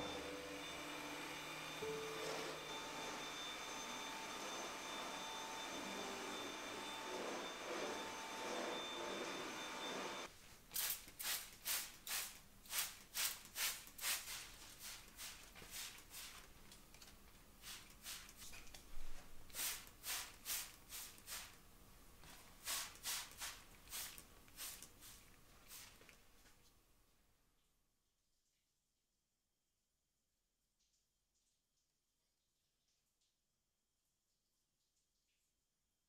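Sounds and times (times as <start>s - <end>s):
vacuum cleaner whining: 0.0s - 10.3s
spray bottle squirts: 10.8s - 16.3s.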